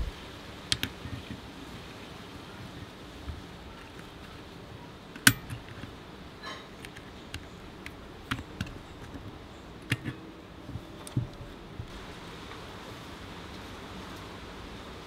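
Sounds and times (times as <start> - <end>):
pliers clicking on brake parts: 5.1 - 11.8.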